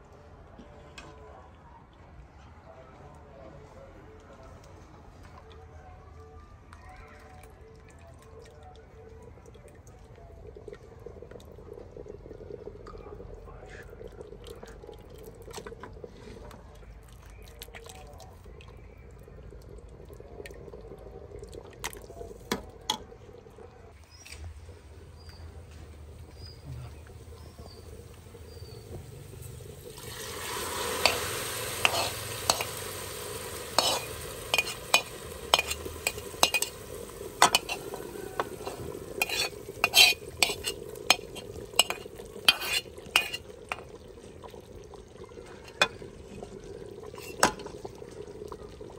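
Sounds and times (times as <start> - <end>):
ladle stirring pot: 21.6 - 23.2, 25.2 - 48.2
onions sizzling: 25.2 - 44.0, 46.8 - 47.9
spoon clinking on pots: 30.6 - 43.9, 47.2 - 47.8
spoon scraping pan: 30.7 - 43.9, 47.2 - 47.8.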